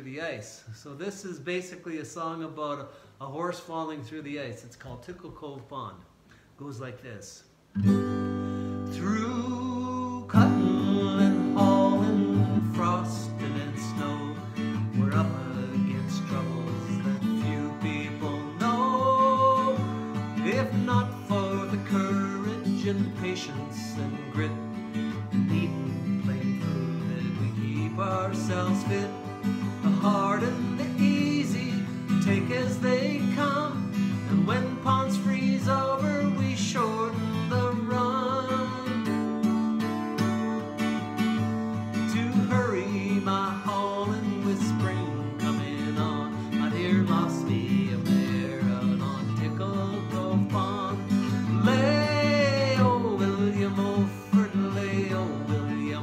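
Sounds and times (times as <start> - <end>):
acoustic guitar strumming: 7.8 - 56.0
man singing: 8.8 - 40.8, 41.9 - 56.0.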